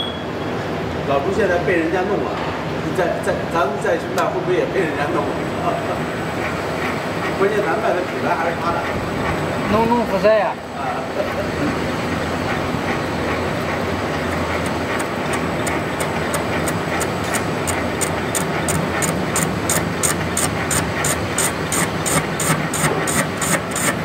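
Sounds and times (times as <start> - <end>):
lathe motor hum: 5.2 - 24.0.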